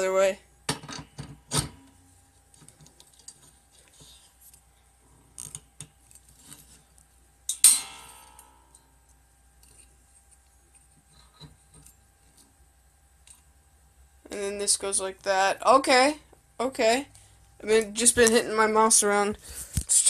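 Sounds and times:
sharp ringing metal clank: 7.5 - 8.9.

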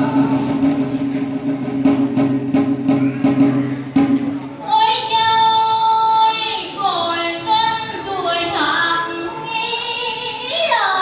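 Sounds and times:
woman singing long sliding notes: 0.0 - 0.8.

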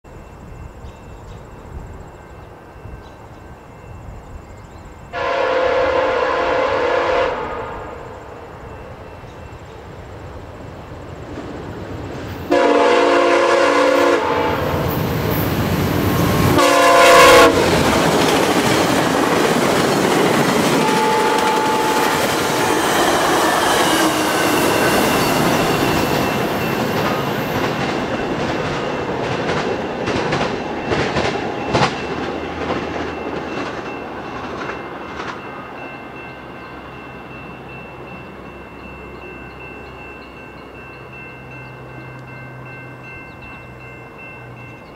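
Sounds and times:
passing train roar: 0.1 - 44.9
train horn blasts: 5.1 - 8.5, 12.5 - 15.0, 16.0 - 17.9, 20.6 - 26.4
wheels clicking over rail joints: 17.4 - 35.5.

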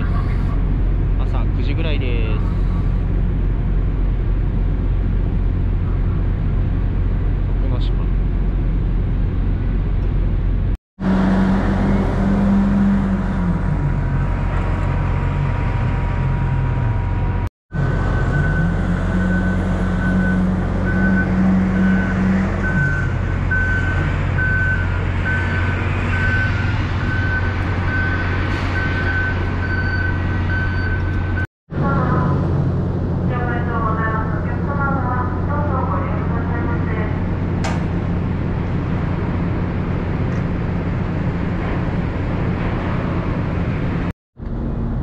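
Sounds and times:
vehicle engines running: 0.0 - 45.0
high reversing beep: 18.1 - 31.5.

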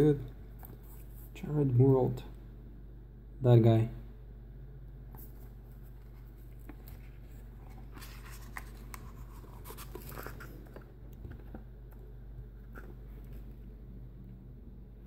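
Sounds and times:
sketchbook pages rustling and turning: 5.1 - 11.7, 12.4 - 13.7.

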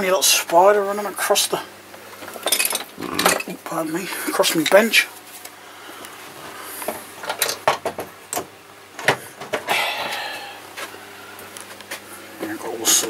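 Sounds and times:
metal tools clinking: 2.4 - 3.6.

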